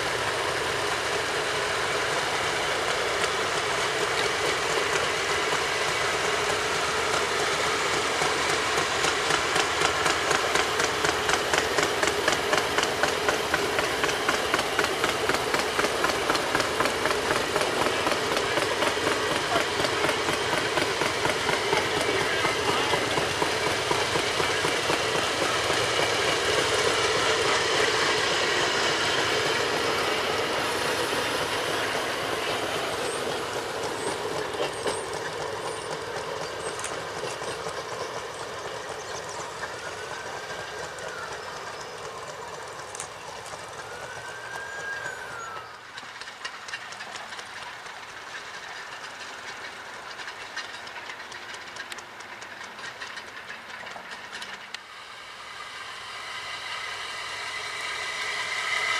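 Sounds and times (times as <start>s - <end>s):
rail speeder running on track: 0.0s - 58.9s
short whistles: 43.7s - 46.0s.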